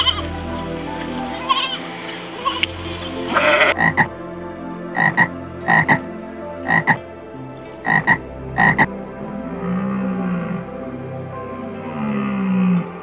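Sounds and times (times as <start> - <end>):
frog croaking: 2.5 - 4.1, 5.0 - 6.0, 6.6 - 7.0, 7.8 - 8.9.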